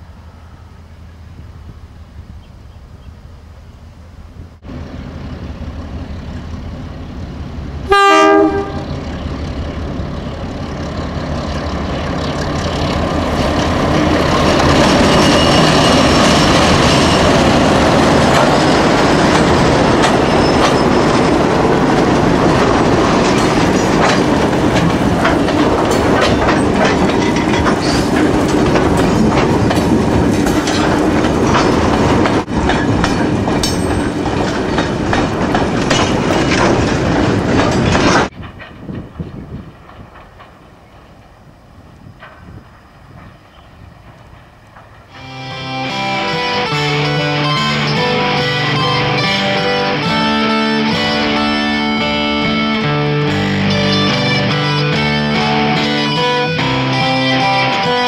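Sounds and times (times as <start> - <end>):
diesel locomotive engines: 0.0 - 58.0
locomotive horn blast: 7.9 - 9.0, 45.1 - 58.0
train wheels clickety-clack: 8.4 - 45.1.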